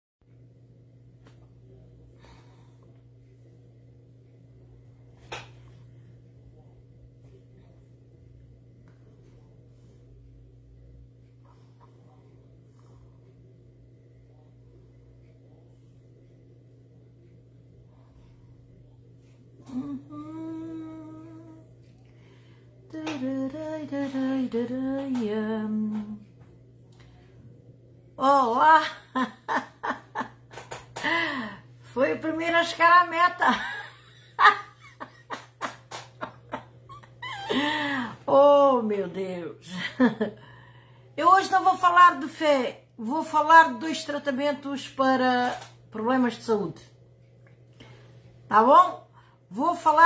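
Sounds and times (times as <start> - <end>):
low room hum: 0.2 - 50.0
woman humming: 19.6 - 22.0, 22.8 - 26.4, 36.4 - 38.6
faint breath: 40.4 - 41.2.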